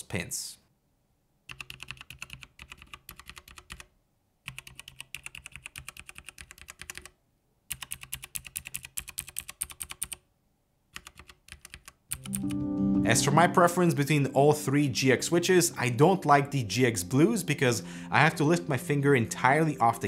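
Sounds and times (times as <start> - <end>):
mechanical keyboard typing: 1.5 - 3.9, 4.5 - 10.2, 10.9 - 12.6.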